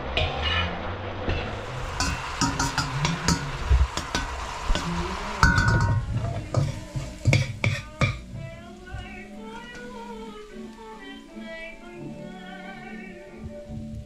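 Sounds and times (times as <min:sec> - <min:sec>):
metal spatula scraping a wok: 0:01.3 - 0:08.3
vegetables sizzling in oil: 0:01.4 - 0:12.1
metallic ring: 0:05.4 - 0:06.1.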